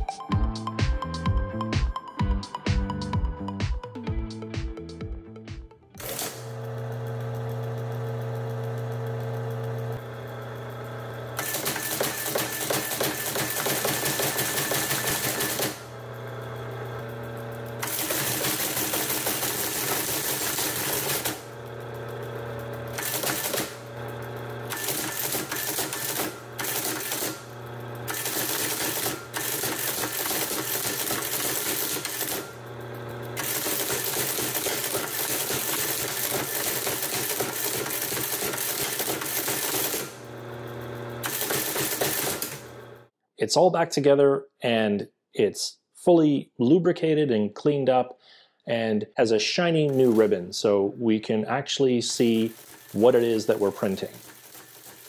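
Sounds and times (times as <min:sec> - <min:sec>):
teletype printing clatter: 0:06.0 - 0:09.0, 0:11.4 - 0:16.0, 0:17.2 - 0:42.8, 0:49.9 - 0:50.3, 0:52.1 - 0:55.0
motor humming: 0:06.0 - 0:18.4, 0:20.7 - 0:36.7, 0:39.6 - 0:43.1.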